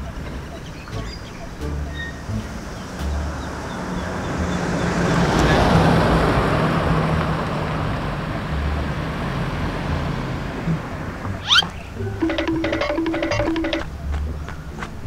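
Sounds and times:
car passing close by: 0:02.0 - 0:11.4.

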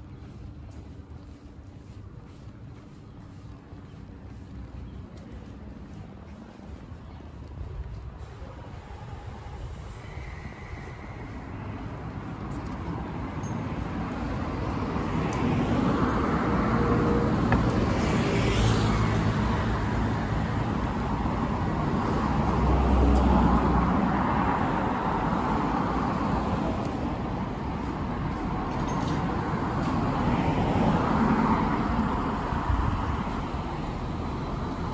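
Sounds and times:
vehicles passing in traffic: 0:00.0 - 0:34.9.

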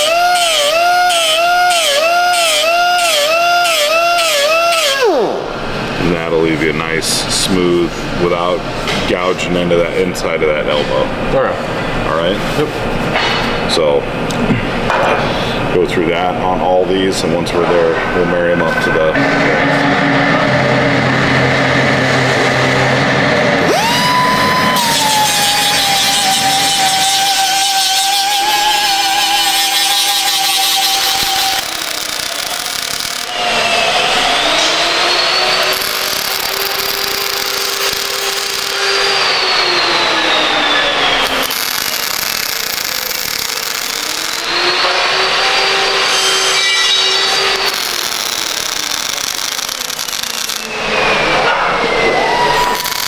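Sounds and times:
welding arc crackle: 0:00.0 - 0:05.1, 0:24.0 - 0:33.6, 0:35.3 - 0:39.4, 0:41.2 - 0:50.9, 0:52.6 - 0:53.0
angle grinder grinding steel: 0:23.6 - 0:53.0.

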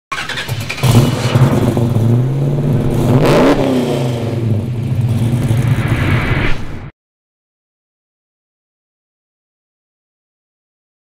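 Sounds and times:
car engine revving: 0:00.1 - 0:06.9
rushing whoosh: 0:00.8 - 0:06.9.

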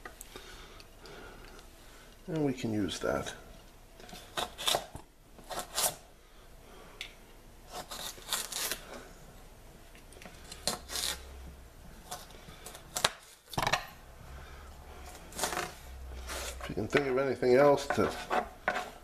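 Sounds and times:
hands scraping celery on cutting board: 0:04.1 - 0:06.0, 0:07.7 - 0:08.9, 0:15.1 - 0:17.0, 0:17.8 - 0:19.0.

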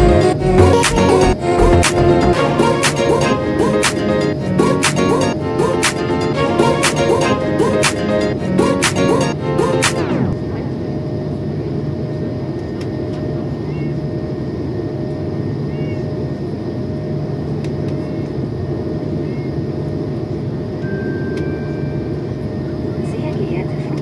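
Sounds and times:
jet engines humming and whining: 0:00.0 - 0:24.0.

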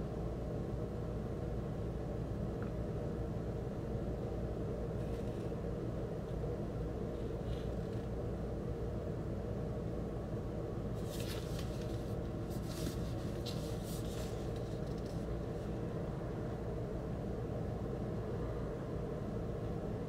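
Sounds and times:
steady low hum: 0:00.0 - 0:20.0
cardboard scrapes: 0:11.0 - 0:15.3
cardboard record jacket rustling: 0:11.0 - 0:15.4.

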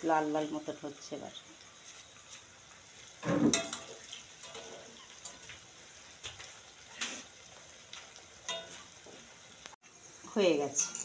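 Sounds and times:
fritters sizzling in hot oil: 0:00.0 - 0:11.0
metal spatula scraping pan: 0:03.2 - 0:05.5.

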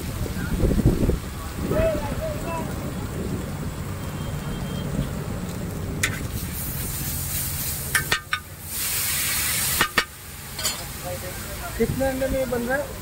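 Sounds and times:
egg frying: 0:05.1 - 0:11.0
liquid sizzling on hot pan: 0:05.2 - 0:12.7.

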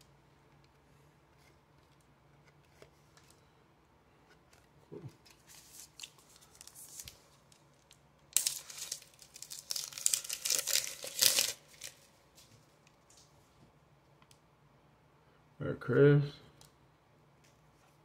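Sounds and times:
soft handling of cards: 0:00.0 - 0:14.5, 0:16.5 - 0:18.0
foil wrapper tearing and crinkling: 0:07.9 - 0:12.0.

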